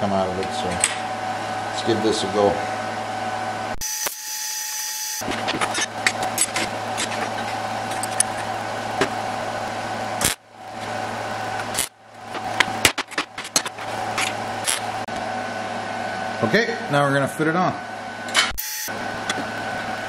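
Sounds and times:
welder hum: 3.3 - 16.2, 18.0 - 20.0
welding arc crackle: 3.8 - 15.1, 18.5 - 20.0.

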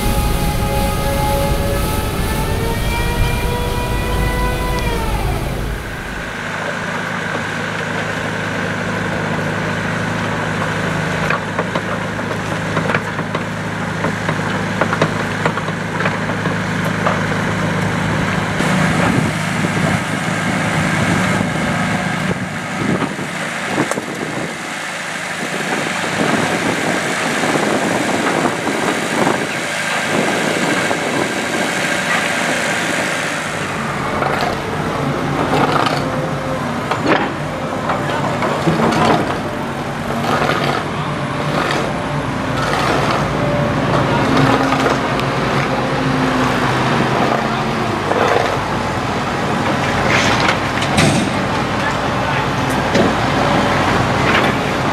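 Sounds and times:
diesel excavator engines: 0.0 - 54.9.

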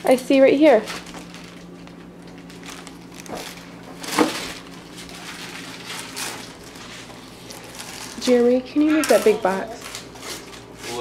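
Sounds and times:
wrapping paper tearing: 2.4 - 11.0.

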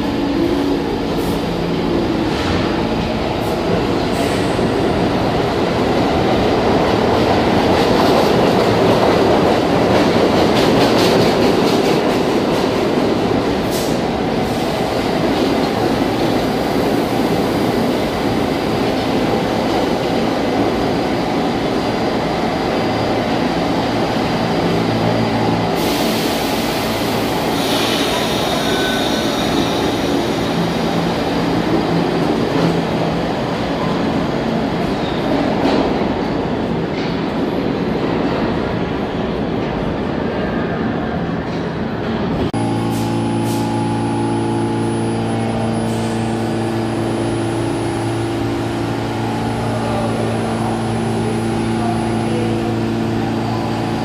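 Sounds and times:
subway train wheels rumbling: 0.0 - 54.0
high wheel squeal: 27.5 - 30.3.

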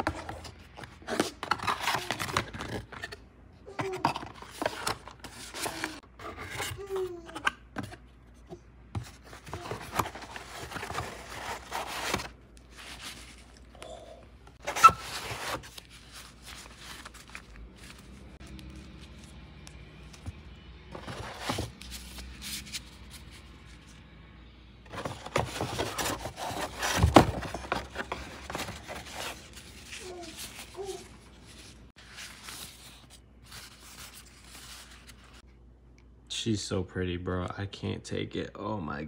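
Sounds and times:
cardboard packaging scraping: 9.2 - 13.5, 14.6 - 18.7, 20.9 - 23.5, 24.9 - 35.4.

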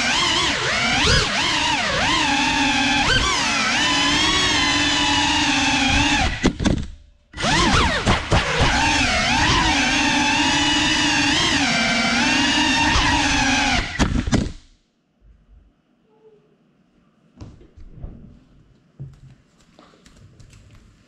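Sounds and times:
drone motors whining: 0.0 - 6.5, 7.4 - 14.0.

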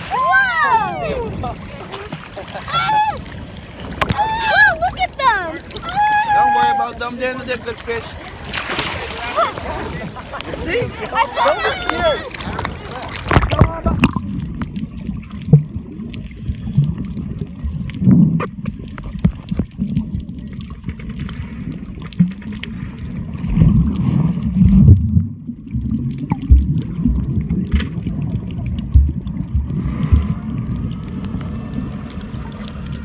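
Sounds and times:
muffled underwater rumbling: 0.0 - 33.0
water bubbling: 0.0 - 33.0.

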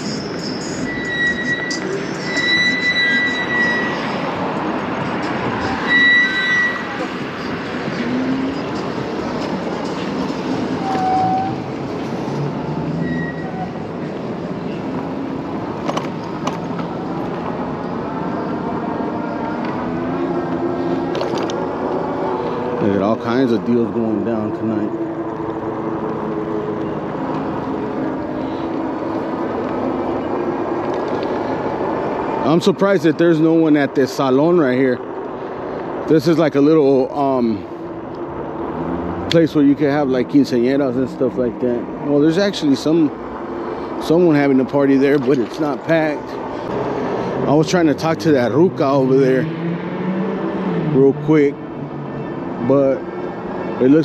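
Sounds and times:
brief high squeal: 0.0 - 4.3, 5.6 - 7.1, 10.7 - 11.6, 13.0 - 13.8
e-bike road and air noise: 0.0 - 54.0
traffic: 0.0 - 54.0
wind: 0.0 - 54.0.

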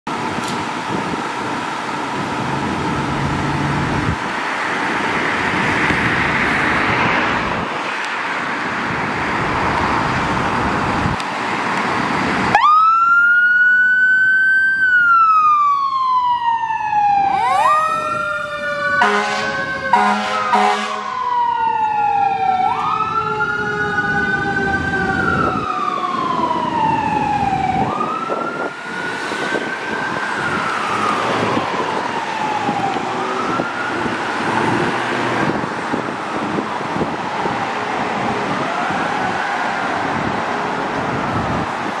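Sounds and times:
fire engine running: 0.1 - 42.0
wail siren rising and falling: 12.1 - 42.0
low siren whine sliding down: 12.5 - 35.6, 37.4 - 40.4
air horn blasts: 19.0 - 21.2.

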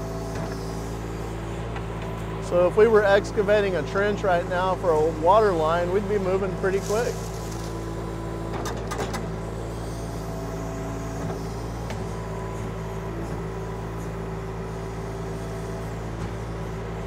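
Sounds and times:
excavator diesel engine running: 0.0 - 17.0.

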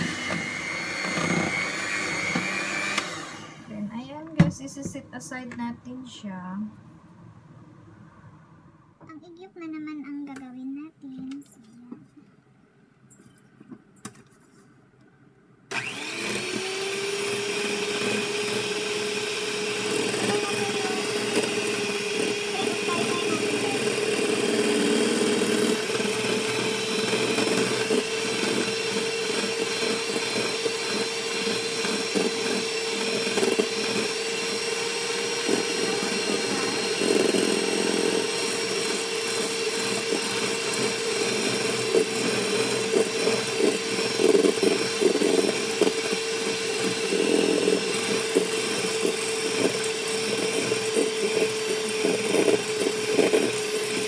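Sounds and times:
electric hand mixer whipping: 0.0 - 4.0, 15.7 - 54.0.

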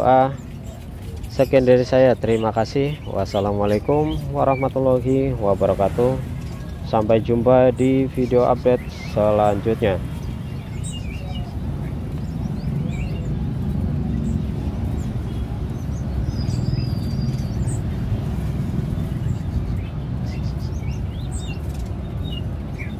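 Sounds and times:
songbirds chirping: 0.0 - 22.9
street traffic rumble: 0.0 - 22.9.

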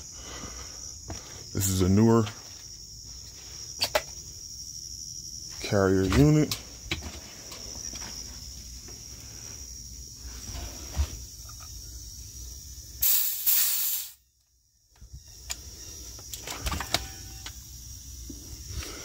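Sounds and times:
compressed gas hissing: 13.0 - 14.2.

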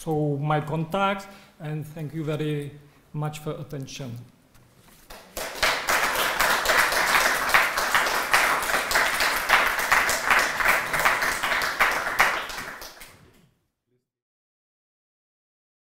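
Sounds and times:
audience applauding: 5.1 - 13.2.

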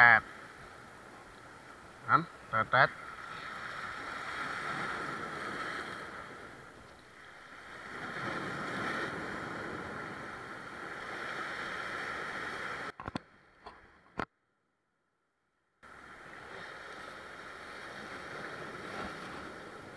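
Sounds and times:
surf breaking against rocks: 3.3 - 13.0.

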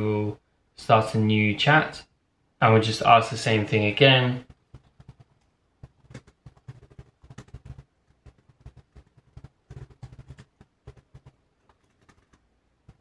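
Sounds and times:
typing on computer keyboard: 4.4 - 13.0.

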